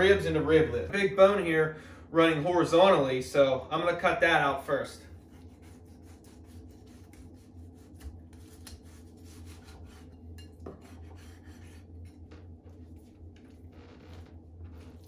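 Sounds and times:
low steady hum: 0.0 - 15.0
cleaver scraping through ribs: 5.1 - 13.6.

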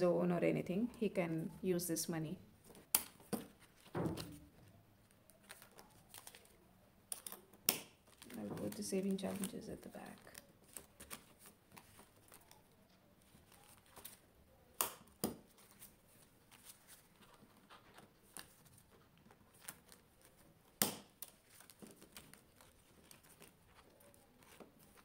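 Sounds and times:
plastic pouches rustling: 2.7 - 6.6, 7.2 - 14.2.

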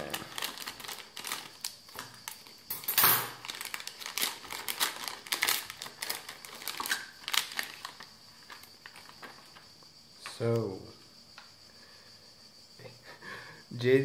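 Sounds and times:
foil bag crinkling: 0.0 - 2.7, 3.3 - 9.6.

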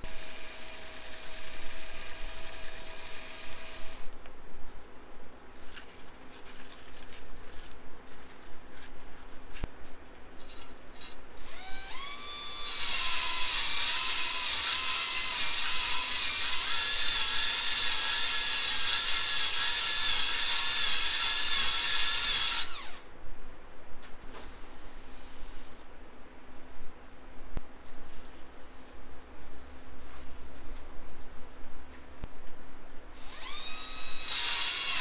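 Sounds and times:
cordless drill whining: 0.0 - 4.1, 11.4 - 23.0, 33.2 - 35.0.

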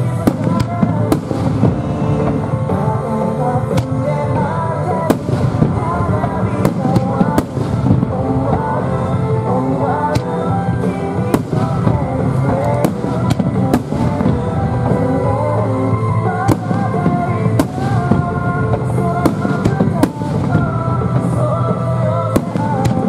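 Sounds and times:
loud music: 0.0 - 23.0
firework shells bursting: 5.0 - 9.0, 11.1 - 15.1, 16.4 - 21.6.

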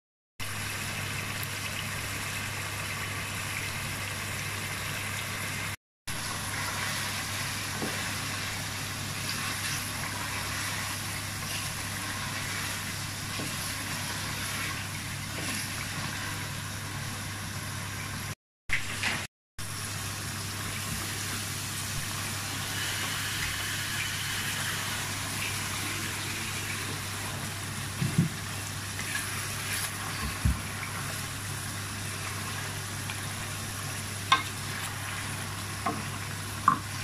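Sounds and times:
curry sizzling in a metal pot: 6.1 - 17.3, 19.6 - 37.0.

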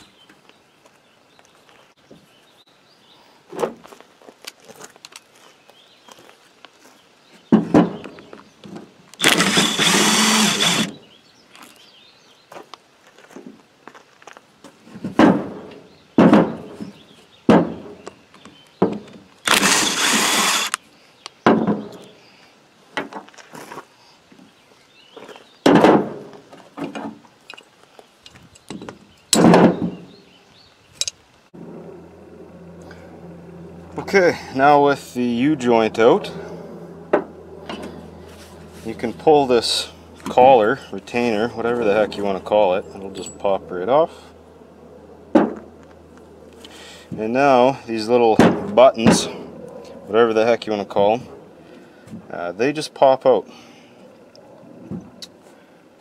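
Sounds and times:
cordless drill running: 9.2 - 11.0, 19.4 - 20.8.

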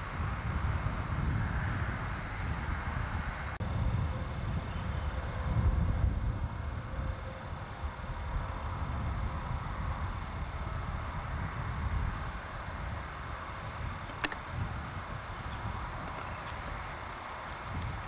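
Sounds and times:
high insect buzz: 4.3 - 18.0
sharp click: 14.1 - 14.4.

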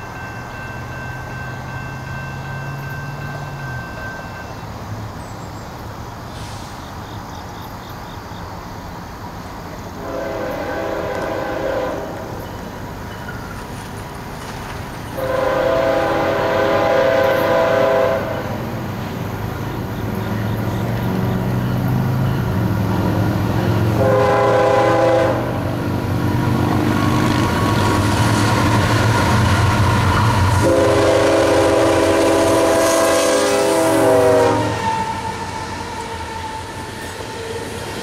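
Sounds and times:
steady rail noise: 0.0 - 38.0
locomotive air horn blasts: 10.0 - 12.3, 15.2 - 18.6, 23.8 - 25.6, 29.9 - 36.5.

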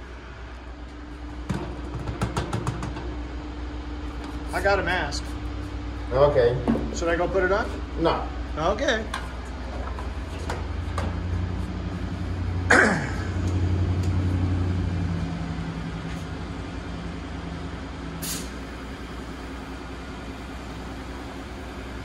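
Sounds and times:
shop machinery humming: 0.0 - 22.0
short hiss: 18.2 - 18.6.

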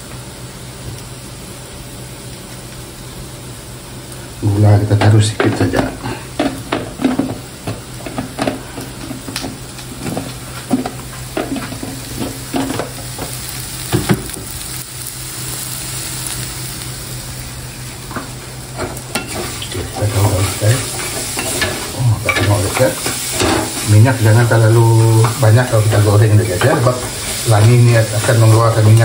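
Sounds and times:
food sizzling in a frying pan: 0.0 - 29.0
wooden spatula scraping a pan: 5.6 - 13.4, 18.8 - 29.0.

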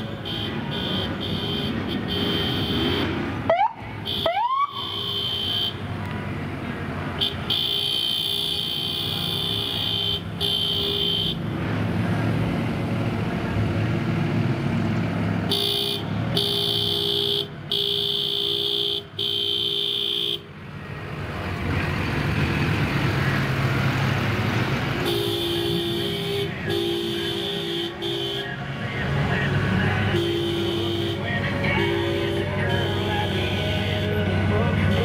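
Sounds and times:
engines rumbling past: 0.0 - 4.1, 11.4 - 16.4, 20.5 - 35.0
vehicle horns honking: 0.0 - 5.9, 7.1 - 11.5, 15.4 - 20.5, 25.0 - 35.0.

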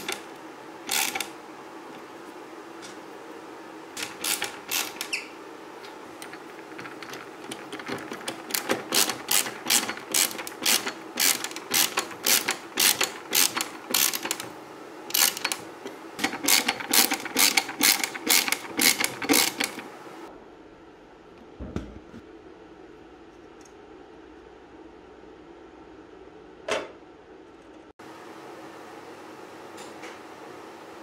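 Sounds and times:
ratcheting screwdriver clicking: 0.9 - 1.3, 4.0 - 5.2, 6.2 - 14.5, 15.1 - 15.6, 16.2 - 19.9.

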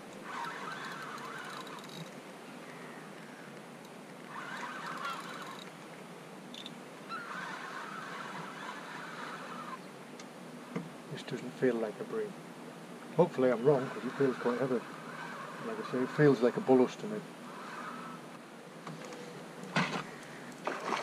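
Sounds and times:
spinning reel whirring: 0.1 - 2.2, 4.2 - 5.8, 6.5 - 9.8, 13.5 - 18.3.

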